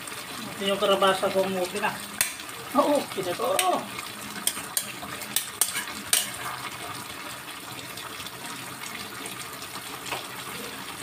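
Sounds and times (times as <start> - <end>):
food sizzling: 0.0 - 11.0
metal spoon scraping a pot: 4.4 - 6.8.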